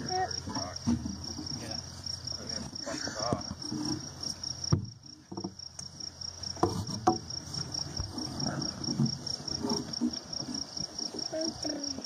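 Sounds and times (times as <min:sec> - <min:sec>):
high-pitched insect chirping: 0:00.0 - 0:12.0
hoof scraping: 0:06.4 - 0:11.8.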